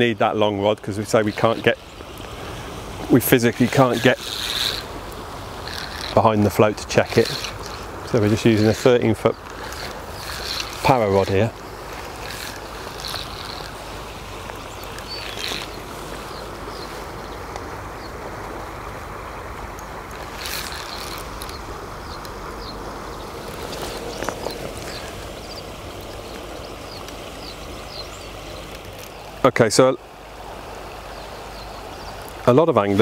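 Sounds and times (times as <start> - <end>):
river water flowing: 0.0 - 33.0
small bird chirping: 7.1 - 11.4, 12.0 - 13.8, 14.5 - 17.4, 20.3 - 29.2
brief rustles: 23.4 - 25.4.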